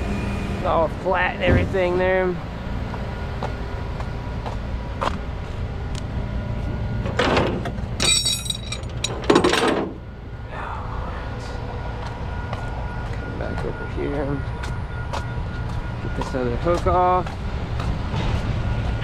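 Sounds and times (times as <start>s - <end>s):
truck engine running: 0.0s - 19.0s
metal clanks and knocks: 7.0s - 10.0s.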